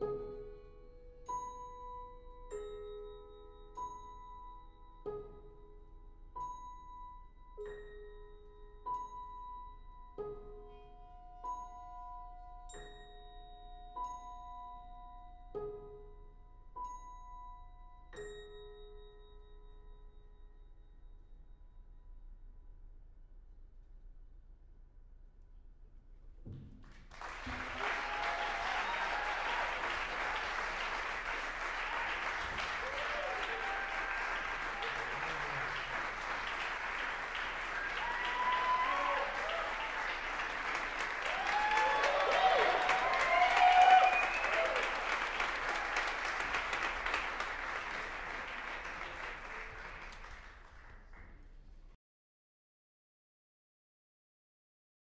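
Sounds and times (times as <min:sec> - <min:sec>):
audience applause: 0:26.8 - 0:51.3.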